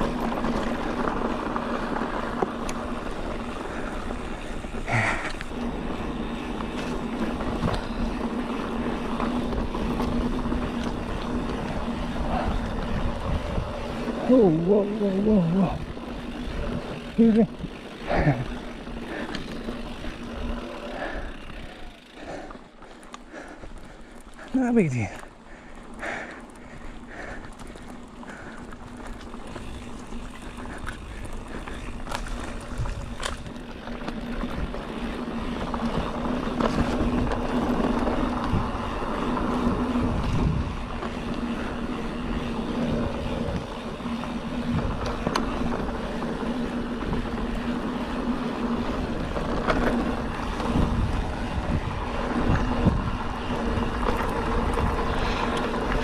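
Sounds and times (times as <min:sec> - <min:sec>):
bike tyre rumble: 0:00.0 - 0:56.0
wind on microphone: 0:50.3 - 0:55.4.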